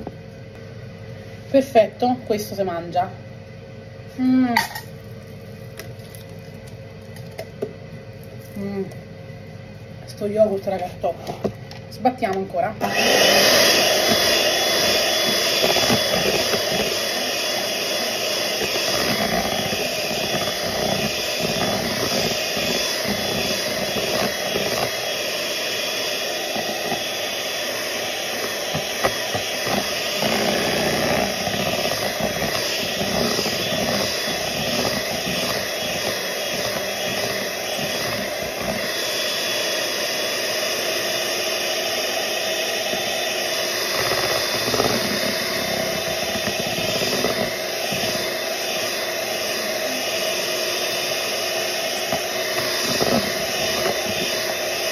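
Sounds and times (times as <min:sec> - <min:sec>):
electric hand mixer whisking: 0:12.2 - 0:54.9.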